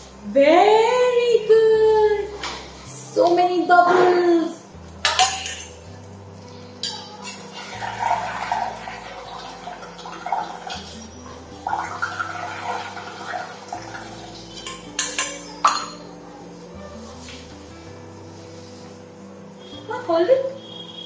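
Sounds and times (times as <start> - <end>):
background music: 0.0 - 21.0
straw clinking against steel bowl: 5.0 - 5.8, 13.8 - 16.1.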